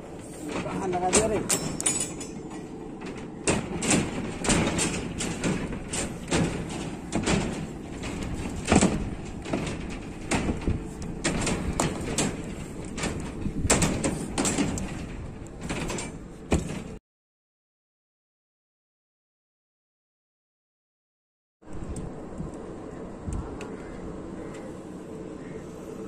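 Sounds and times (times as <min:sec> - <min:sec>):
low rumbling background noise: 0:00.0 - 0:17.0, 0:21.7 - 0:26.0
knocks and thuds: 0:03.0 - 0:17.0.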